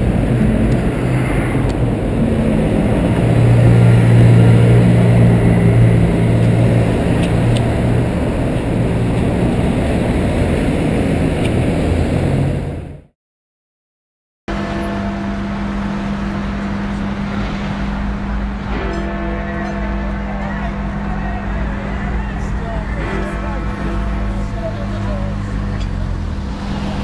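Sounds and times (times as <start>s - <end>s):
lorry diesel engine pulling away: 0.0s - 13.1s, 20.8s - 27.0s
traffic rumble: 0.0s - 13.1s, 14.5s - 27.0s.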